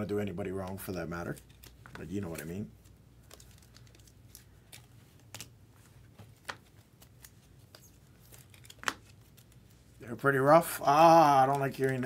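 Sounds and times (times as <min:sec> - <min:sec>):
trading cards clicking and tapping: 0:11.2 - 0:12.0.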